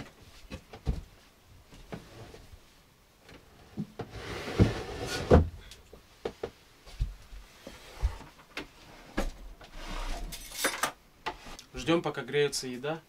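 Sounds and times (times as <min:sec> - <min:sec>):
light knocks and thuds: 0:00.5 - 0:01.2.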